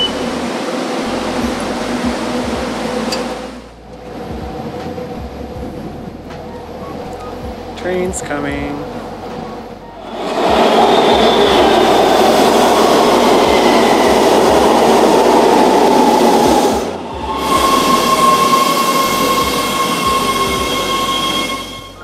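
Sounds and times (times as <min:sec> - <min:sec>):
subway train wheels rumbling: 0:00.0 - 0:22.0.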